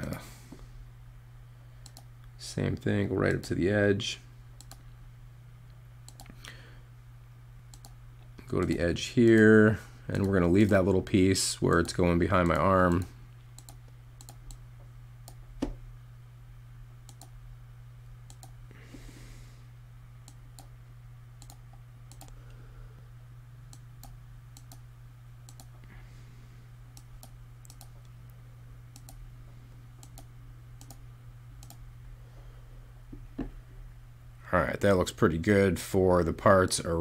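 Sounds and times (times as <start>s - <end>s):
steady low hum: 0.0s - 37.0s
computer mouse clicks: 1.8s - 2.1s, 4.6s - 4.8s, 6.1s - 6.4s, 7.7s - 8.0s, 11.7s - 14.6s, 17.1s - 17.3s, 18.3s - 18.6s, 21.4s - 22.4s, 23.7s - 24.8s, 25.5s - 25.8s, 27.0s - 28.1s, 28.9s - 29.2s, 30.0s - 31.0s, 31.6s - 31.8s.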